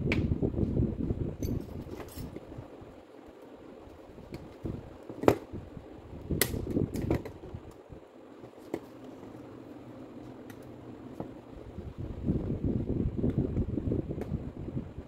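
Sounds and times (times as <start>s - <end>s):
light metal clicks and clinks: 1.4s - 2.4s.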